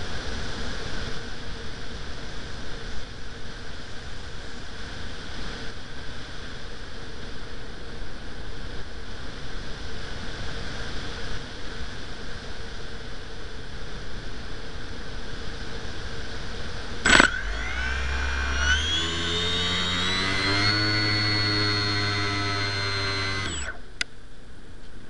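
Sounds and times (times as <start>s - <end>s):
faint steady hum: 12.8s - 25.0s.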